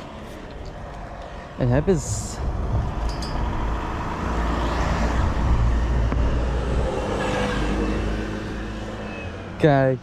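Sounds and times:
low traffic rumble: 0:00.0 - 0:10.0
vehicle passing close by: 0:02.4 - 0:09.6.

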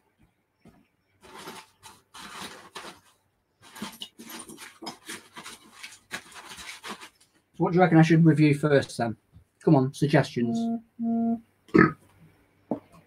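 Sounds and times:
rustling and scuffling: 0:00.6 - 0:07.6.

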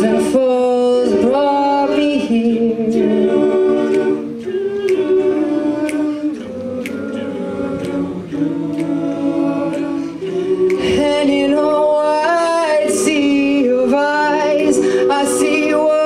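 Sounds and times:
male a cappella group singing: 0:00.0 - 0:16.0
sharp tick: 0:04.8 - 0:05.1, 0:05.8 - 0:07.2.

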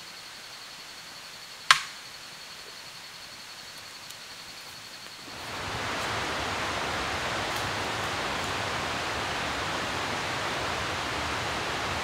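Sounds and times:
steady hiss: 0:00.0 - 0:12.0
sharp loud snap: 0:01.7 - 0:02.0
rushing noise: 0:05.3 - 0:12.0.

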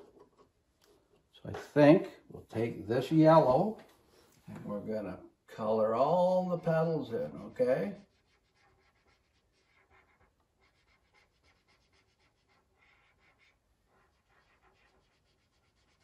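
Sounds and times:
marker scratching on paper: 0:06.7 - 0:16.0.

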